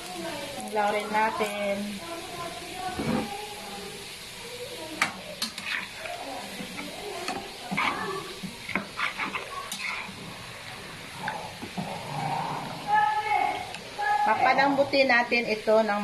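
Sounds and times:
gizzards sizzling in oil: 0.0s - 16.0s
metal spatula scraping a pan: 5.4s - 10.4s.

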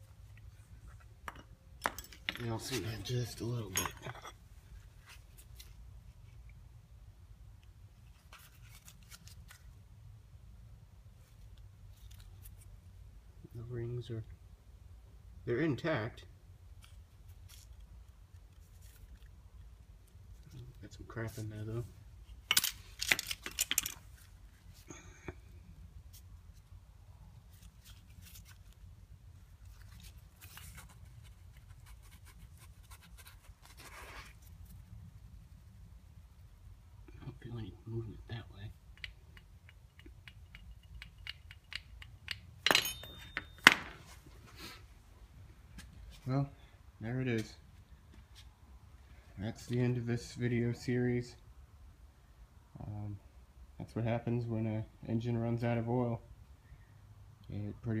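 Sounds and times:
rustling and scraping of metal parts: 0.0s - 6.4s, 8.0s - 9.8s, 16.8s - 19.4s, 20.0s - 34.9s, 39.6s - 46.3s
low steady hum: 0.0s - 58.0s
light metallic clinks: 39.0s - 43.9s.

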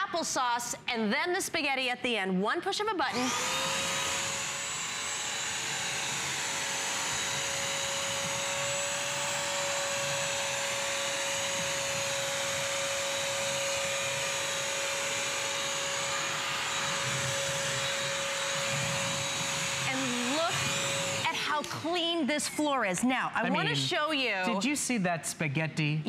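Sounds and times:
vacuum mop whining: 3.1s - 21.9s.

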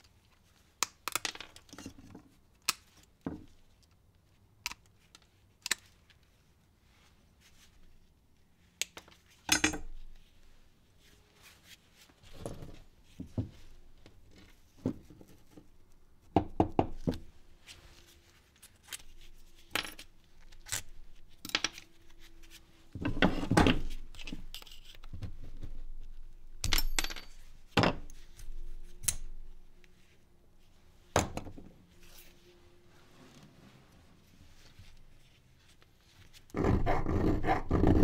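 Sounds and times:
metal parts and tools clinking: 24.1s - 25.0s, 26.6s - 28.2s.

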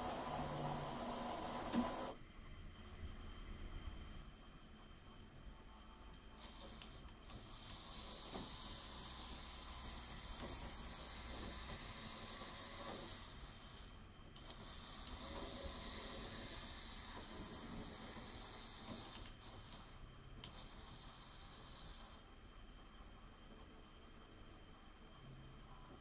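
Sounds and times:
toy train motor whirring: 0.0s - 2.2s, 6.4s - 22.2s.

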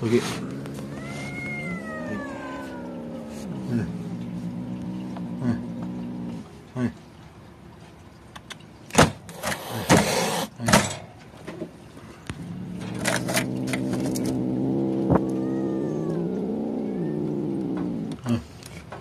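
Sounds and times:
cat hissing: 0.0s - 6.4s, 9.3s - 10.6s, 12.4s - 18.5s
cat growling low: 0.0s - 7.0s, 12.3s - 18.6s.

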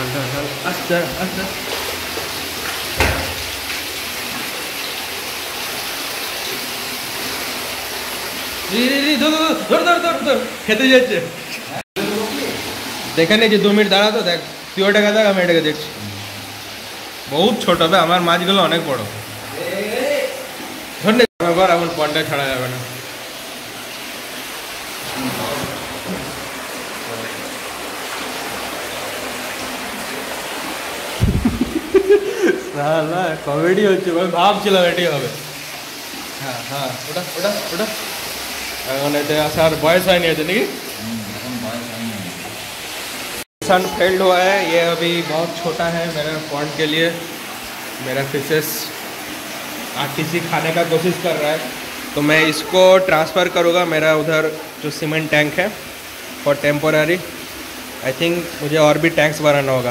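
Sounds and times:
flowing water: 0.0s - 59.9s
fish splashing into water: 1.5s - 5.3s.

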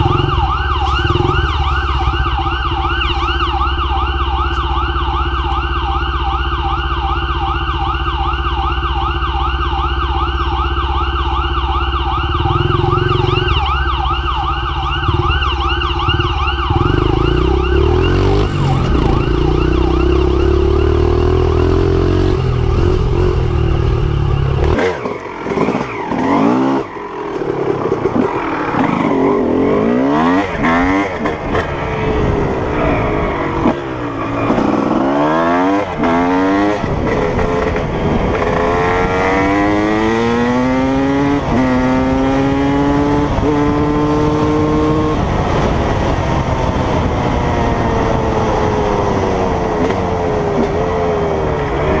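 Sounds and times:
dirt bike engines droning: 0.0s - 7.6s, 10.0s - 52.0s
police siren wailing: 0.0s - 52.0s
dirt bike revving through gears: 24.6s - 26.9s, 28.0s - 31.8s, 33.4s - 45.5s.

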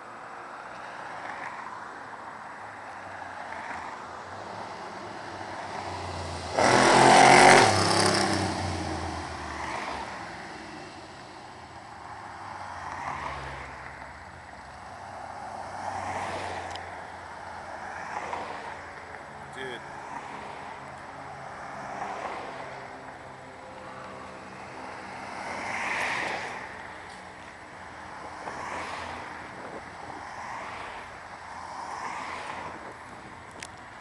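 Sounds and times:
car traffic passing: 0.0s - 34.0s
loud truck engine passing: 5.4s - 9.2s.

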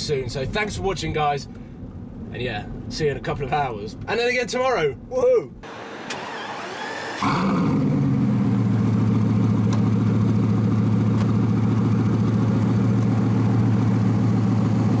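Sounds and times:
car engine idling: 5.6s - 15.0s.

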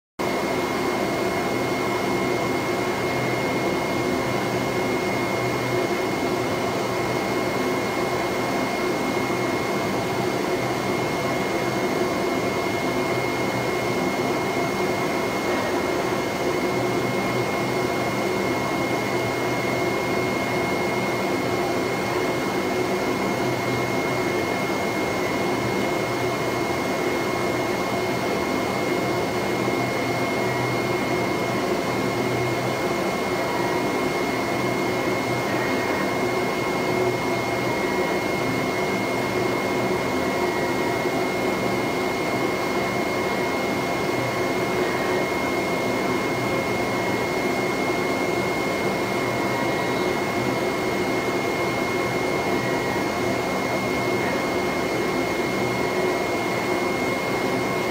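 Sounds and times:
vacuum blower whirring: 0.2s - 57.9s
thin high whine: 33.2s - 57.9s.

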